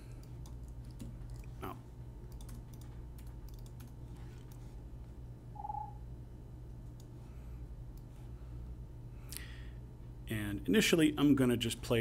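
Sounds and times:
low electrical hum: 0.0 - 12.0
short beep: 5.6 - 6.0.

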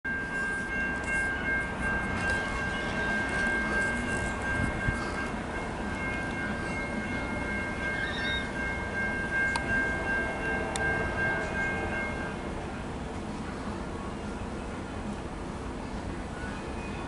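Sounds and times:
distant train rumble: 0.1 - 17.0
train horn tone: 9.5 - 12.5.

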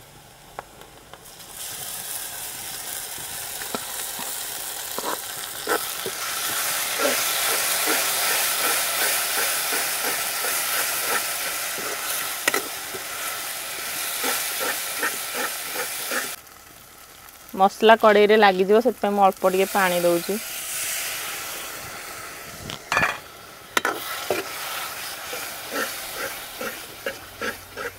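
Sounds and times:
onions sizzling in hot oil: 0.0 - 27.9
metal spatula scraping pan: 6.8 - 13.1, 14.1 - 16.4, 25.2 - 27.9.

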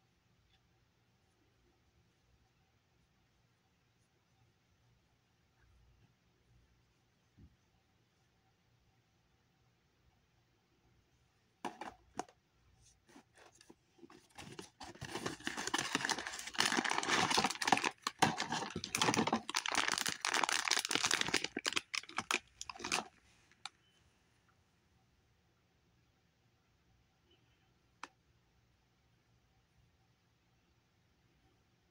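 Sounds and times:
plastic packaging crinkling: 13.1 - 23.7.

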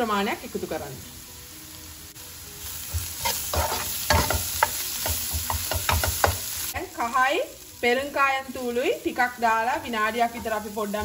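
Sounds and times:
onions sizzling in oil: 0.0 - 11.0
spatula scraping a pan: 3.0 - 6.4.

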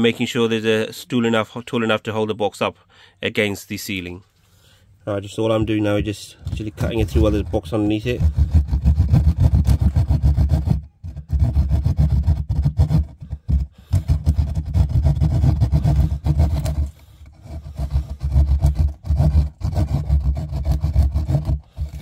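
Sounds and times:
hand saw cutting: 6.5 - 22.0.

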